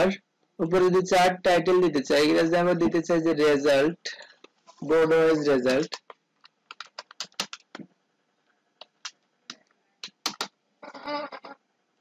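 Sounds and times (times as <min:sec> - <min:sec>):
keyboard keystroke clicks: 0:05.9 - 0:07.8.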